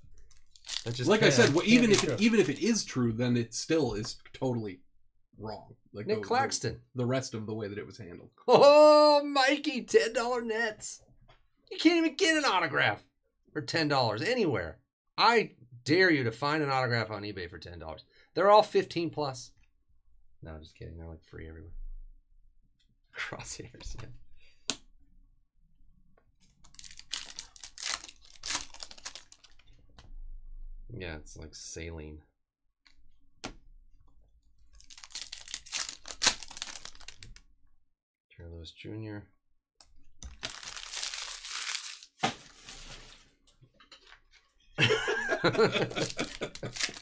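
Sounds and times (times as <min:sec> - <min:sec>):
sharp crackle: 0:00.2 - 0:02.6, 0:26.6 - 0:29.7, 0:34.7 - 0:37.4, 0:40.4 - 0:43.1
foil wrapper crinkling and tearing: 0:00.2 - 0:02.8, 0:26.7 - 0:29.6, 0:34.8 - 0:37.4, 0:40.3 - 0:43.3, 0:45.8 - 0:47.0.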